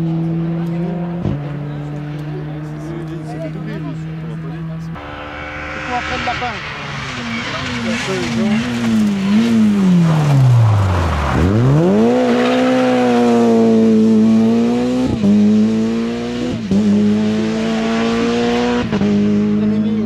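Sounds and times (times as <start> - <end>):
rally car engine revving: 0.0 - 20.0
gear changes: 5.7 - 13.4.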